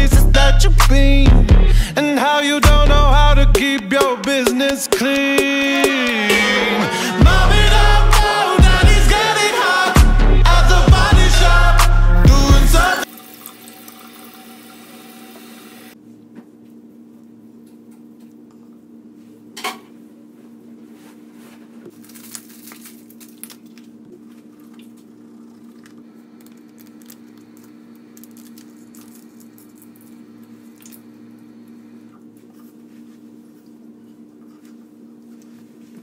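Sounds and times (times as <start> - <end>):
steady low hum: 4.4 - 13.1.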